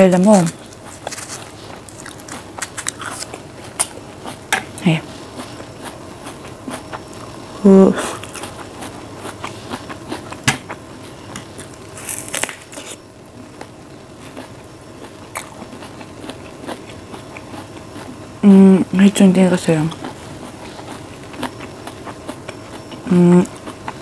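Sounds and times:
person humming: 23.1 - 23.5.

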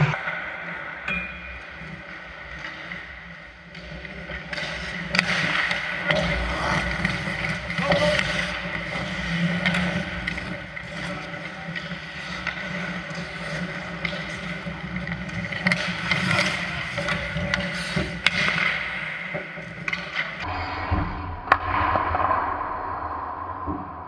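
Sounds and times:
steady rink hum: 0.0 - 24.0
hockey sticks and puck clacking: 0.1 - 20.5
skate blades scraping ice: 2.4 - 20.5.

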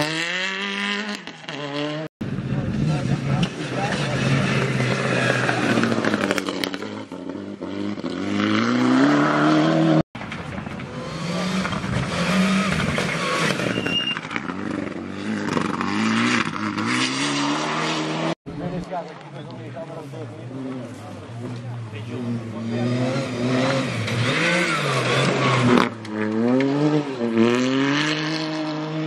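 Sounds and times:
rally car engine accelerating: 0.0 - 10.0, 20.3 - 29.0
rally car engine through gear changes: 22.2 - 29.0.

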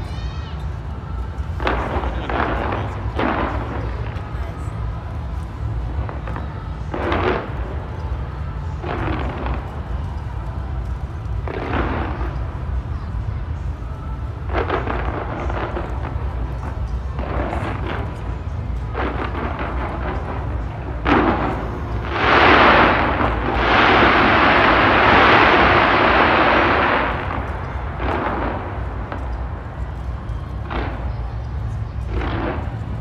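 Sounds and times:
fireworks bangs and crackling: 0.0 - 33.0
steady low rumble: 0.0 - 33.0.

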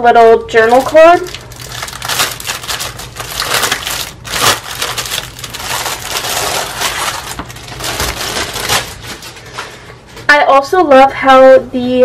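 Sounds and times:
plastic packaging crinkling: 0.5 - 9.8.

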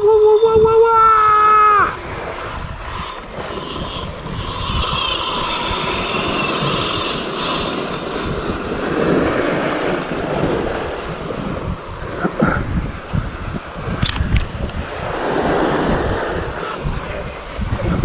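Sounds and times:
wind buffeting microphone: 0.0 - 18.0
small waves washing on rocks: 1.3 - 11.7.

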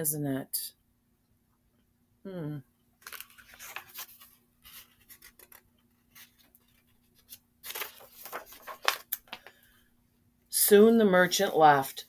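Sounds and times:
paper page rustling: 3.0 - 9.6.

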